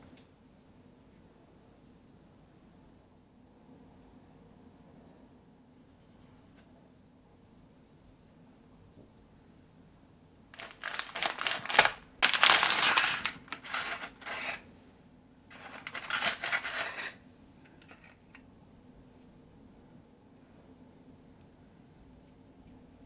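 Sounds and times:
plastic packaging crinkling: 10.6s - 14.6s, 15.5s - 17.2s.

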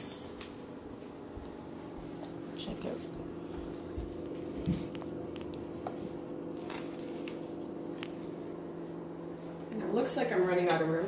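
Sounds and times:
microwave oven humming: 0.0s - 11.0s.

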